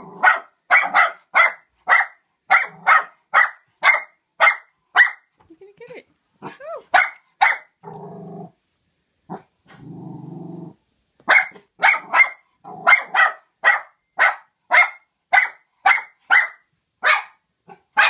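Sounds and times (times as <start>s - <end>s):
dog growling low: 0.0s - 0.2s, 7.8s - 8.6s, 9.3s - 10.8s
dog barking sharply: 0.2s - 5.3s, 6.4s - 7.7s, 11.2s - 18.0s.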